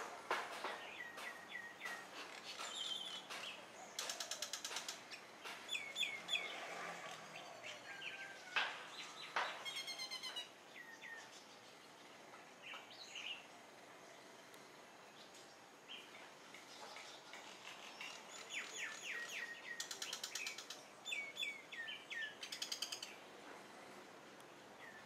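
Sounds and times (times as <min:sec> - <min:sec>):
bird calling: 0:09.0 - 0:11.4.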